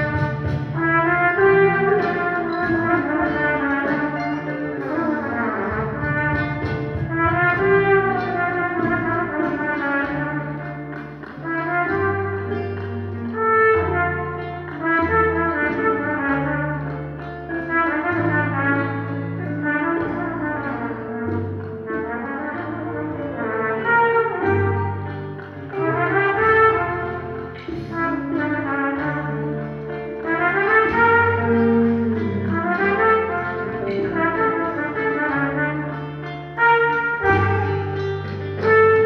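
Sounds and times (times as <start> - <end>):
live band music: 0.0 - 39.0
trumpet melody: 0.0 - 39.0.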